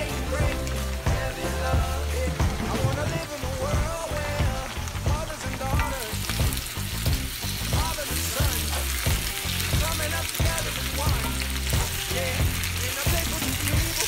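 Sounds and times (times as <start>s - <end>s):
music with bass line: 0.0s - 14.0s
potatoes sizzling in oil: 0.0s - 14.0s.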